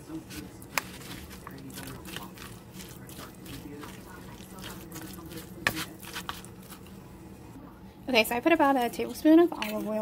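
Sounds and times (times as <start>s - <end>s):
spoon scraping plastic: 0.3s - 6.9s
wet squishing of food: 0.3s - 7.0s.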